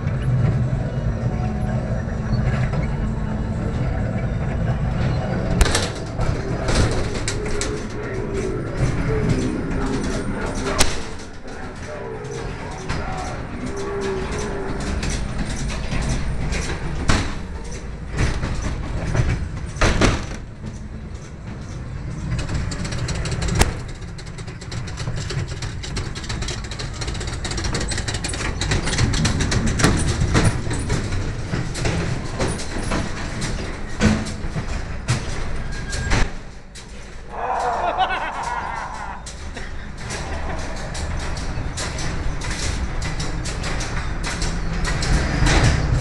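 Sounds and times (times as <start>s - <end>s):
ride car rumbling on track: 0.0s - 46.0s
sharp knocks and bangs: 5.5s - 11.6s.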